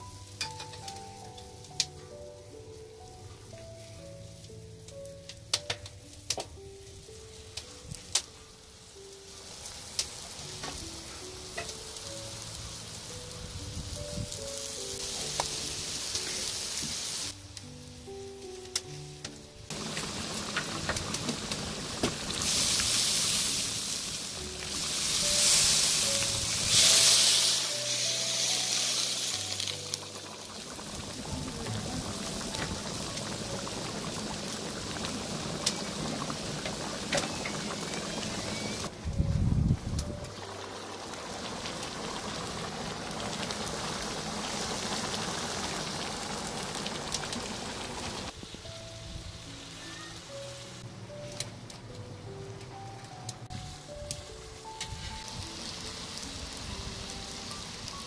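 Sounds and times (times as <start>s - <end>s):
oil sizzling in pot: 0.0s - 17.4s, 19.6s - 38.9s, 39.7s - 50.8s, 53.5s - 58.0s
background music: 0.0s - 58.0s
rice boiling in water: 19.7s - 39.0s, 39.8s - 48.4s.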